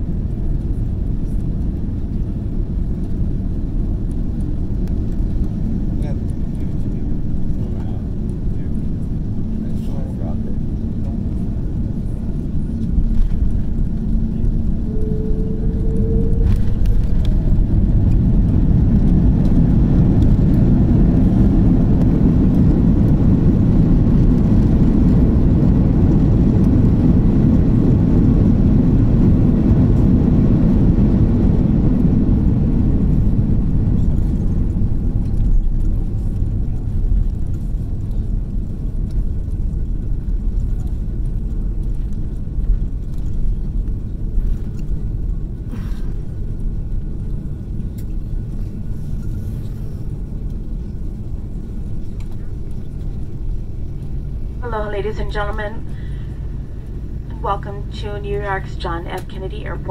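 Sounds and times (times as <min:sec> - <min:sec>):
airplane touchdown: 0:00.0 - 0:59.9
low rumble of landing roll: 0:00.0 - 0:59.9.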